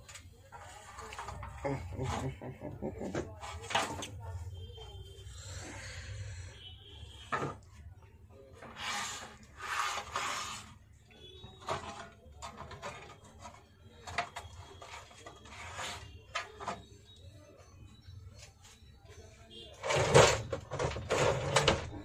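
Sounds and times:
casing scraping and rubbing: 0:08.6 - 0:10.8.

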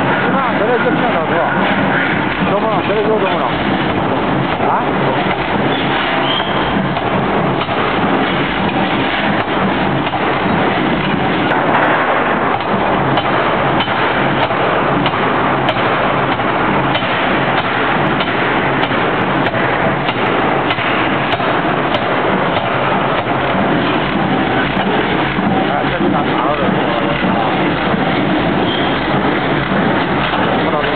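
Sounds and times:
loud workshop din: 0:00.0 - 0:30.9.

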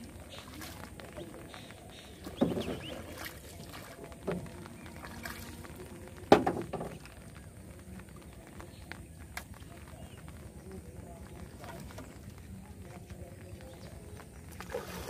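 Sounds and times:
paddle sounds in water: 0:00.0 - 0:15.0.

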